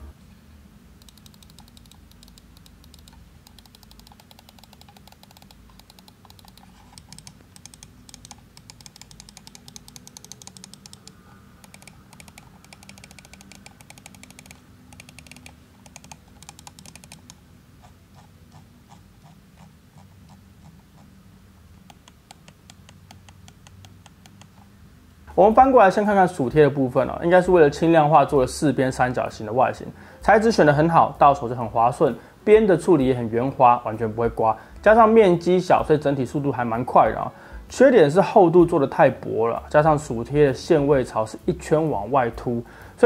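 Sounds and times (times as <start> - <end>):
mouse scroll wheel ticking: 1.0 - 21.1, 21.9 - 24.7.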